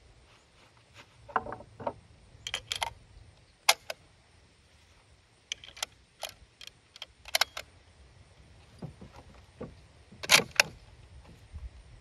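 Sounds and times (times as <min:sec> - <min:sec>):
rifle action metallic clicks: 0:02.4 - 0:03.0, 0:03.6 - 0:04.0, 0:05.5 - 0:07.7, 0:10.2 - 0:10.8.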